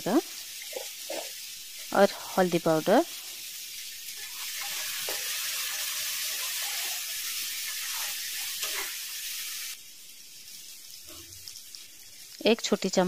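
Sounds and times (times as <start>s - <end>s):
food sizzling in hot oil: 0.0s - 13.0s
spatula stirring a pan: 0.3s - 12.4s.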